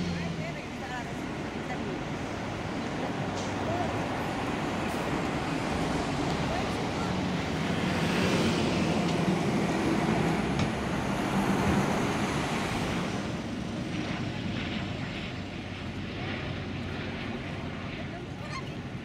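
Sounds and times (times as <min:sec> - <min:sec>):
bus driving past: 0:00.0 - 0:13.8
car passing: 0:00.0 - 0:14.2.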